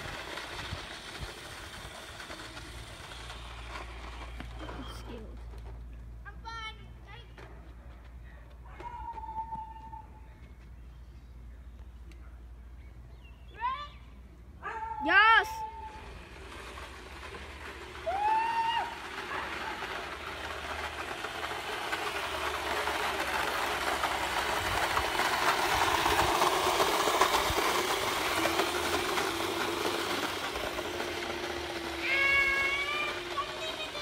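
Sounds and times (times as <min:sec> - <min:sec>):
electric scooter rolling on asphalt: 0:00.0 - 0:34.0
high-pitched rising cry: 0:17.9 - 0:20.1, 0:31.8 - 0:34.0.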